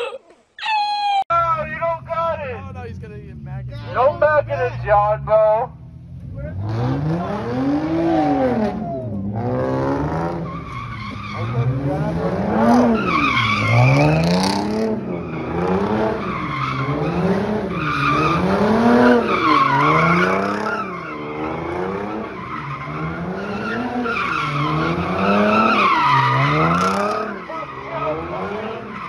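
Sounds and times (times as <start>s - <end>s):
car engine revving: 1.3s - 29.0s
tyres squealing: 12.7s - 29.0s.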